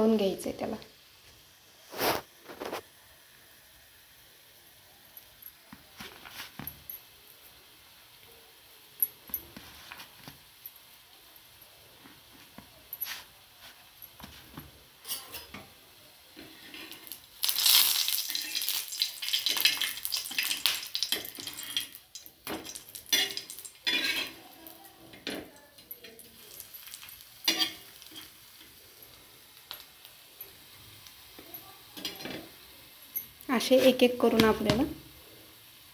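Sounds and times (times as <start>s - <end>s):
spatula scraping on iron pan: 23.1s - 24.5s.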